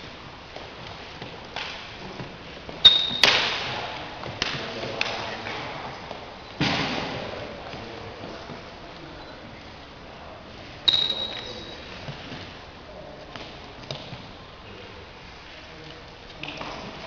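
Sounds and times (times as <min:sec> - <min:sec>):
short high squeak: 0:02.8 - 0:03.2, 0:10.9 - 0:11.9.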